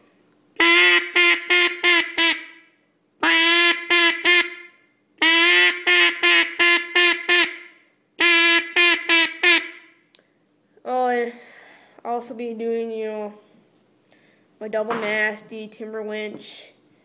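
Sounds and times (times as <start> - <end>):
duck call quacking: 0.6 - 2.5, 3.2 - 4.6, 5.2 - 7.6, 8.2 - 9.8.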